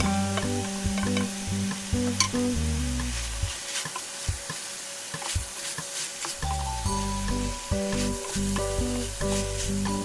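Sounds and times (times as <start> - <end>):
background music: 0.0 - 3.4, 6.4 - 10.0
meat sizzling in a pan: 0.1 - 10.0.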